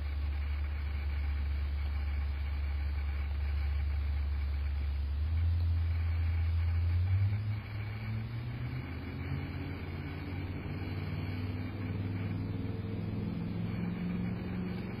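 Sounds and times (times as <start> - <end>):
low mechanical hum: 0.0 - 15.0
low drifting tones: 5.4 - 15.0.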